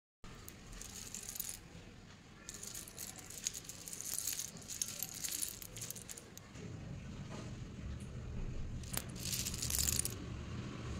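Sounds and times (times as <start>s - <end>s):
slate pencils clinking: 0.3s - 1.7s, 2.5s - 6.4s, 8.8s - 10.2s.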